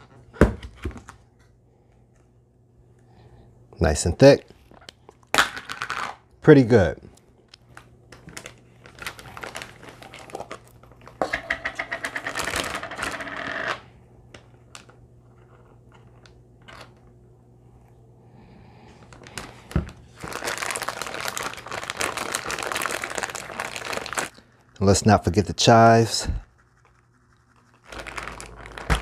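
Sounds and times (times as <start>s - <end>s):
plastic bag crinkling: 7.7s - 11.2s, 12.2s - 13.2s, 19.1s - 25.7s, 26.4s - 29.0s.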